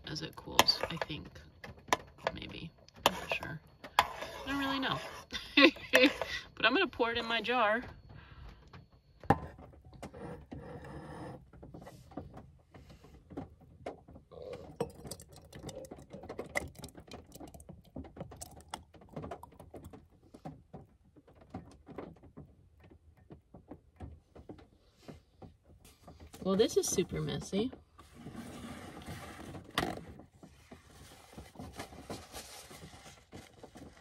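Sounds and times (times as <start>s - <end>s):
thick sauce pouring and scraping: 14.7s - 20.0s.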